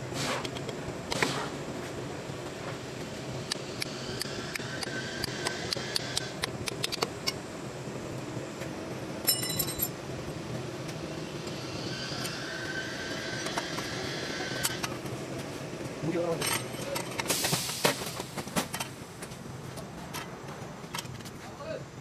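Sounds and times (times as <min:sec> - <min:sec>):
workshop hum: 0:00.0 - 0:22.0
ringing metal clink: 0:09.3 - 0:09.9.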